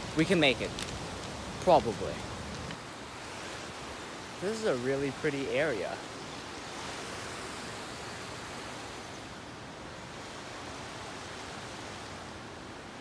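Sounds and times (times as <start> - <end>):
river rushing over stones: 0.0 - 13.0.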